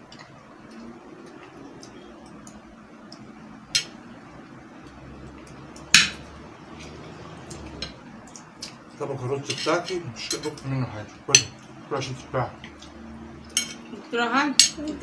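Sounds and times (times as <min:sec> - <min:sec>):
spoon clinking against plate: 0:13.5 - 0:13.9.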